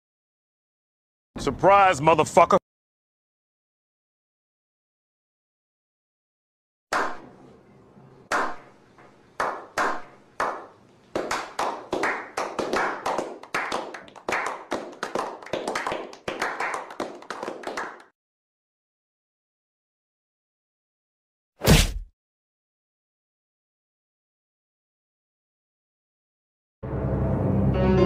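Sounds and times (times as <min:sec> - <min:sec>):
hand claps: 0:06.9 - 0:07.3, 0:08.3 - 0:18.2.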